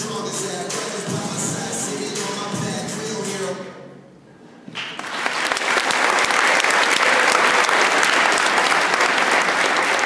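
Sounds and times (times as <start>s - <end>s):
audience applauding: 4.8s - 10.0s.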